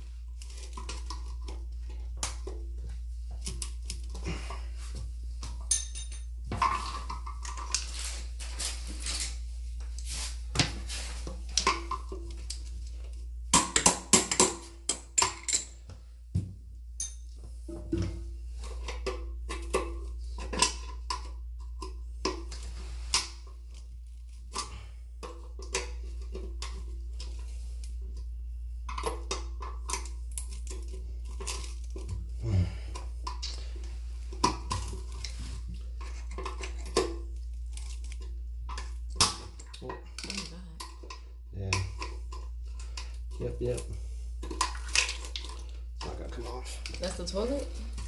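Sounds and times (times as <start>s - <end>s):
steady low hum: 0.0s - 48.0s
metal tools clinking and scraping: 5.6s - 6.4s.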